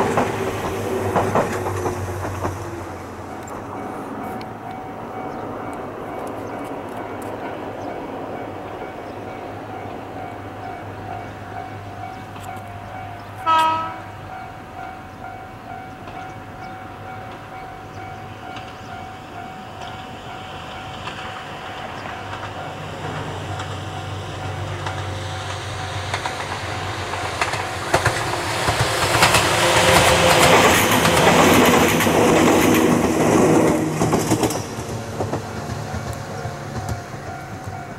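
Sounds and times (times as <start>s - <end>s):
train wheels clattering over rail joints: 0.0s - 7.9s, 16.0s - 37.9s
train horn blast: 13.2s - 14.5s, 28.0s - 33.8s.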